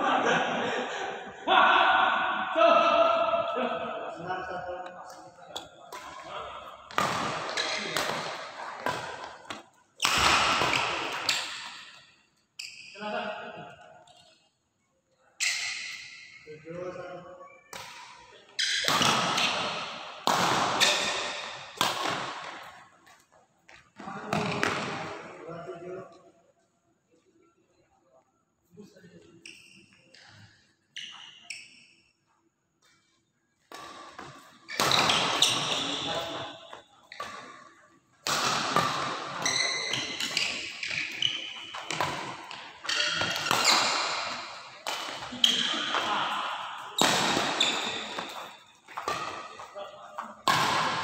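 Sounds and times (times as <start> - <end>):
badminton rackets hitting shuttlecock: 5.6 - 12.0, 17.7 - 22.8, 33.7 - 51.0
shoes squeaking on court floor: 29.4 - 32.0, 33.7 - 37.8, 38.7 - 50.7.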